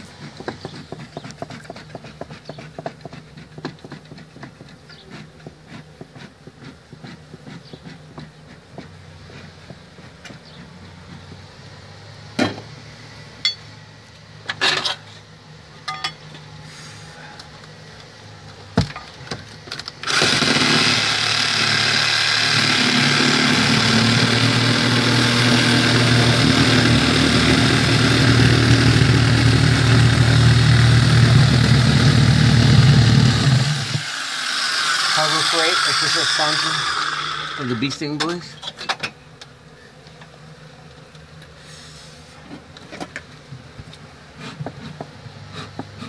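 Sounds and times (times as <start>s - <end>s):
power tool cutting wood: 20.0s - 38.5s.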